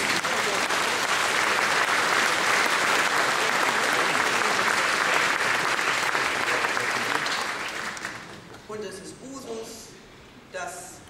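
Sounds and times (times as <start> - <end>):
audience applause: 0.0 - 8.5.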